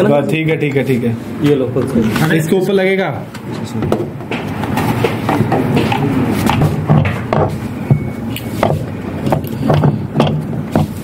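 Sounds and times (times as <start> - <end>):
low background noise: 0.0 - 11.0
plastic knocks and clatter: 3.8 - 11.0.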